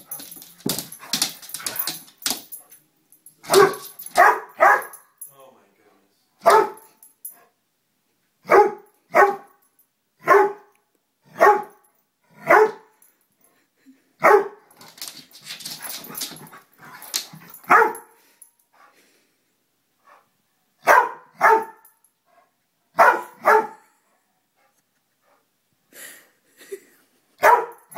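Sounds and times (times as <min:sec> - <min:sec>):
dog pawing at doormat: 0:00.0 - 0:02.6, 0:14.8 - 0:17.9
dog barking: 0:03.4 - 0:05.0, 0:06.4 - 0:06.9, 0:08.4 - 0:09.5, 0:10.2 - 0:10.7, 0:11.3 - 0:11.8, 0:12.4 - 0:12.9, 0:14.2 - 0:14.6, 0:17.7 - 0:18.2, 0:20.8 - 0:21.8, 0:23.0 - 0:23.8, 0:27.4 - 0:27.9.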